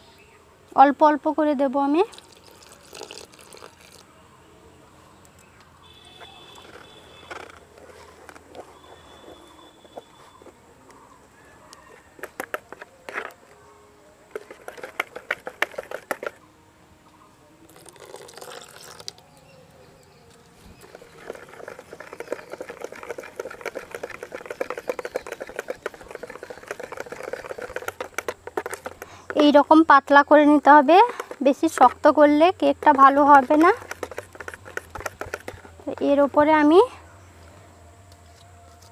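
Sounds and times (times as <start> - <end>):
milk pouring: 2.0 - 4.1, 17.7 - 19.2, 20.8 - 29.2, 31.1 - 35.7
whisk beating batter in bowl: 14.3 - 16.4, 20.8 - 29.4, 31.1 - 35.7.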